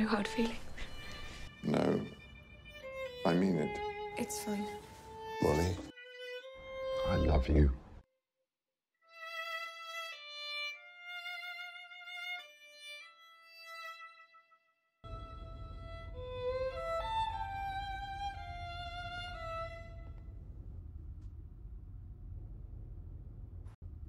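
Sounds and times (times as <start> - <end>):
solo violin melody: 0.0 - 7.8, 9.0 - 20.3
low steady rumble: 15.1 - 24.0.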